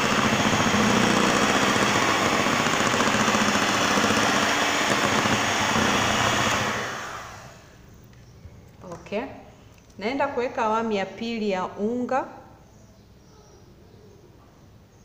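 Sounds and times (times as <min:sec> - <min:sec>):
electric hand mixer whisking: 0:00.0 - 0:07.6.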